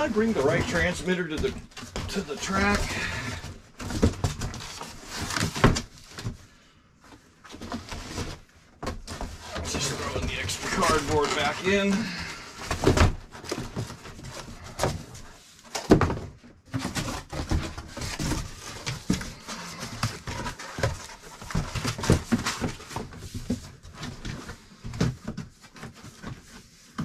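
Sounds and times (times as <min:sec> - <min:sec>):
cardboard rustling and scraping: 0:00.0 - 0:27.0.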